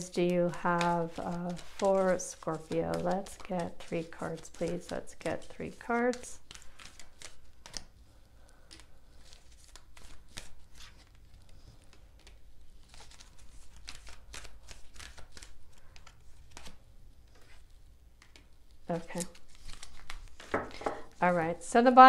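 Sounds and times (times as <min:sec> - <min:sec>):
cards being shuffled: 0:00.2 - 0:21.4
cards dropping onto table: 0:20.4 - 0:21.1.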